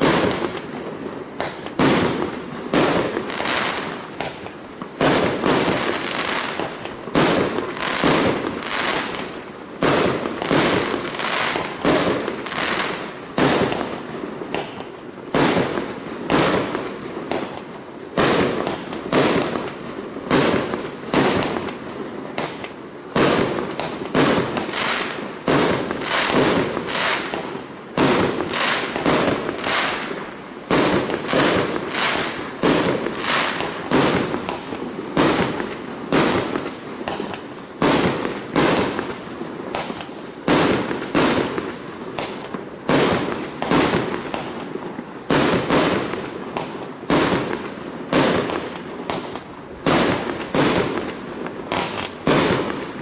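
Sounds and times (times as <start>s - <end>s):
firework shots firing: 0.0s - 53.0s.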